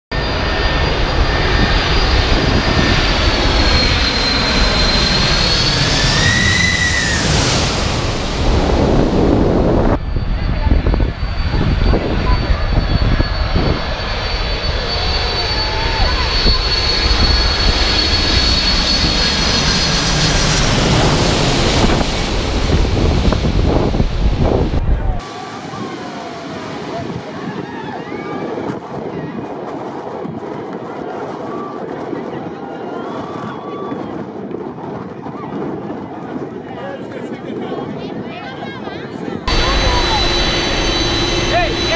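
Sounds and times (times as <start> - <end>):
jet engines roaring: 0.1 - 34.8, 39.4 - 41.9
wind buffeting microphone: 0.2 - 41.9
high fan whine: 39.4 - 41.9.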